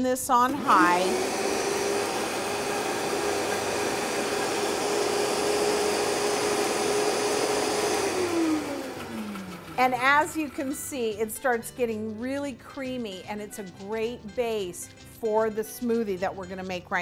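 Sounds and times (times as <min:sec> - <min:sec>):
blender motor running: 0:00.4 - 0:11.2.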